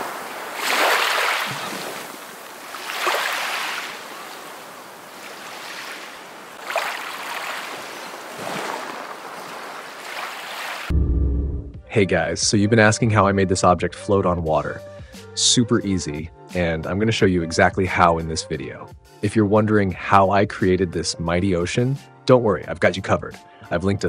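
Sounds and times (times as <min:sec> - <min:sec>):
waves breaking: 0:00.0 - 0:10.9.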